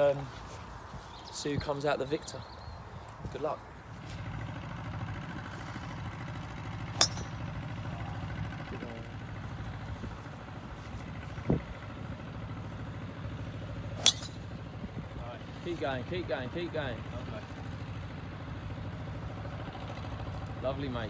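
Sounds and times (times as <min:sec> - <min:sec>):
steady low rumble: 0:03.0 - 0:20.6
golf club striking ball: 0:06.7 - 0:08.0, 0:13.7 - 0:14.9.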